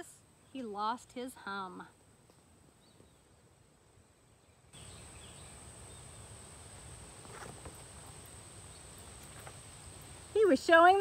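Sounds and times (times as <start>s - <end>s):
book page turning: 7.2s - 7.8s.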